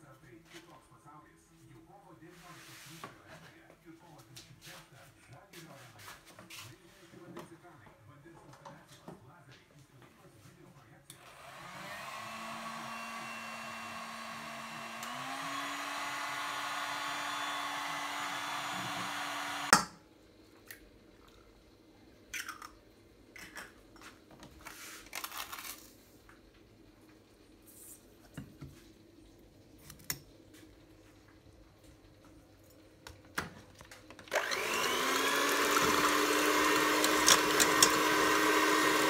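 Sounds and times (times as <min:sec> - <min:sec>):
heat gun blowing: 0:11.2 - 0:19.8, 0:34.3 - 0:39.0.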